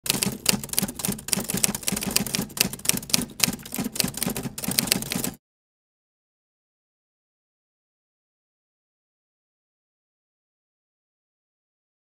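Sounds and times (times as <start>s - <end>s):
typewriter key clacks: 0.1s - 5.4s.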